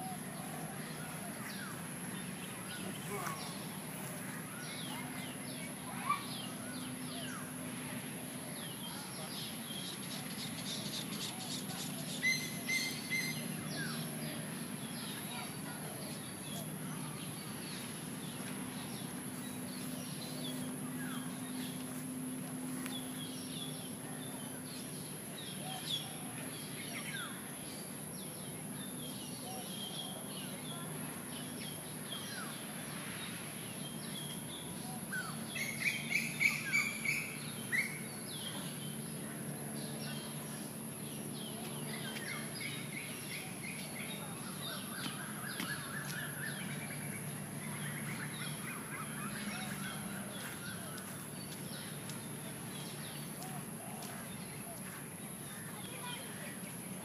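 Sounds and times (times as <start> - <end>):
constant high whine: 0.0 - 57.0
steady low hum: 0.0 - 57.0
birds chirping: 8.6 - 27.5, 33.7 - 56.9.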